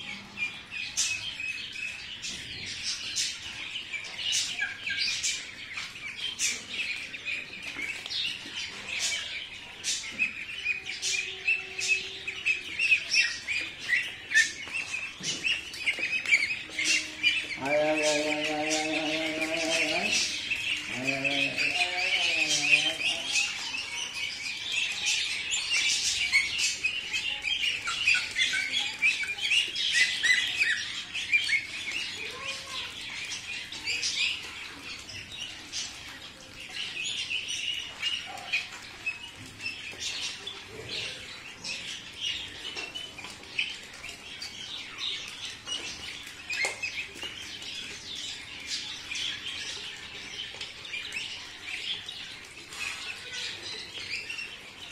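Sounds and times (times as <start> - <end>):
bills dabbling in feed: 0.0 - 54.9
ducklings peeping: 0.0 - 54.9.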